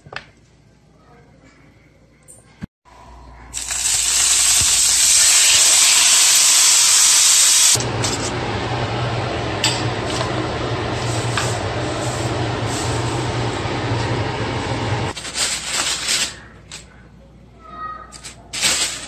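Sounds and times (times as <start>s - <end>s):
meat sizzling in frying pan: 3.6s - 7.8s
low hum: 7.5s - 15.1s.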